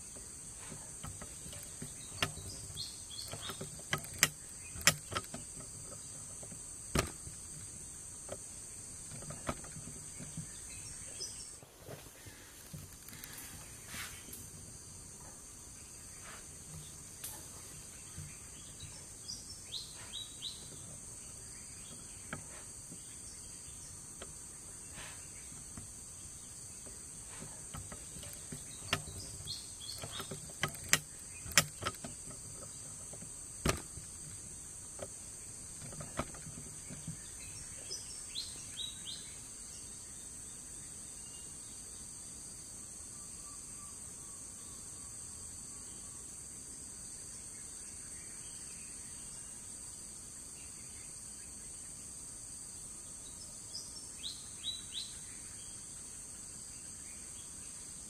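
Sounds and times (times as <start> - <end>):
bird chirps: 0.0 - 11.6, 15.3 - 34.8, 35.4 - 42.0, 53.3 - 58.0
insects droning: 0.0 - 58.0
sharp clicks: 1.0 - 7.7, 27.6 - 34.4.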